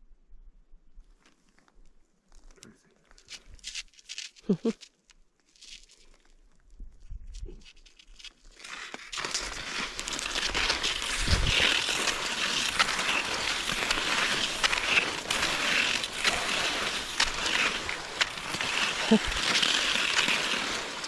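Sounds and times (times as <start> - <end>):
skis scraping over snow: 7.6 - 21.0.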